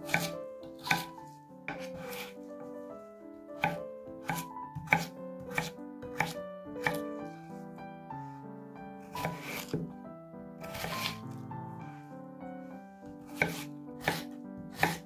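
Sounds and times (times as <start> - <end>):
knife chopping on wooden board: 0.0 - 2.3, 3.6 - 7.1, 9.1 - 10.0, 10.6 - 11.3, 13.2 - 15.0
background music: 0.0 - 15.0.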